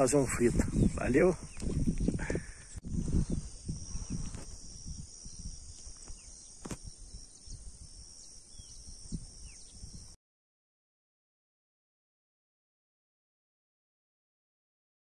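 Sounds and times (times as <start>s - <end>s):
insect chorus: 0.0s - 10.2s
wind rumbling on microphone: 0.0s - 10.2s
bird chirps: 5.2s - 10.2s.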